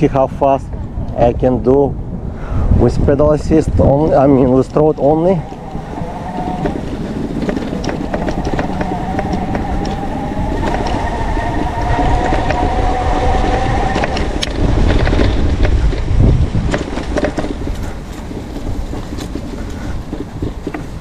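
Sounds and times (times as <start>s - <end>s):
wind rumble: 0.0s - 21.0s
bike rattling over rough grass: 3.5s - 21.0s
electric motor whining: 5.0s - 15.4s.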